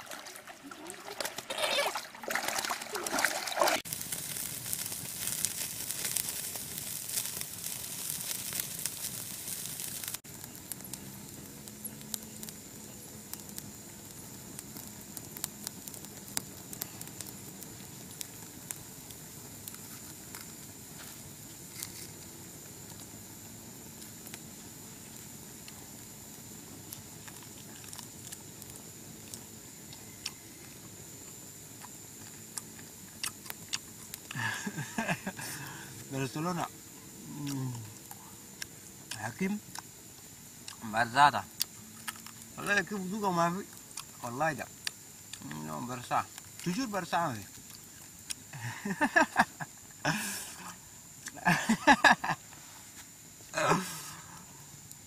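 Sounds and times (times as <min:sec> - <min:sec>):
water splashing and trickling: 0:00.0 - 0:05.4
campfire crackling and popping: 0:00.0 - 0:55.0.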